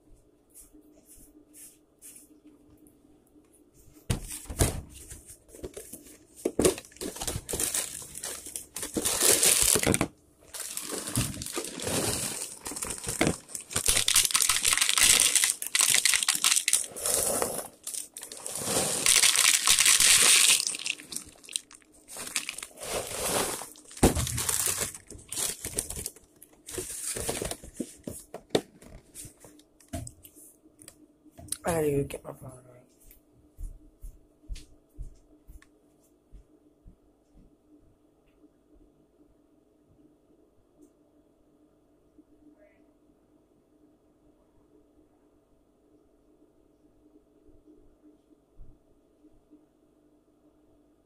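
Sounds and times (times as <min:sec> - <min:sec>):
cereal box and bag rustling: 0:05.0 - 0:28.4
cereal pouring into plastic bowl: 0:10.6 - 0:27.5.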